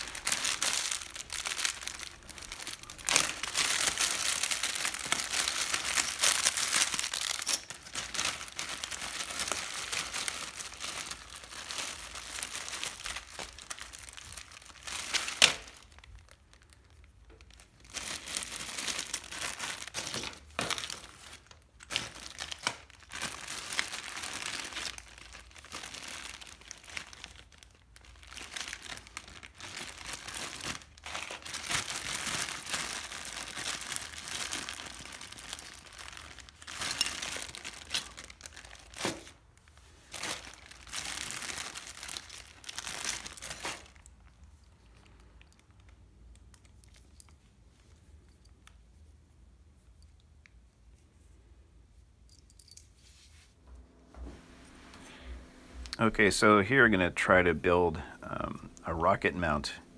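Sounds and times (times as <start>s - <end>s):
plastic bags crinkling: 0.0s - 47.3s.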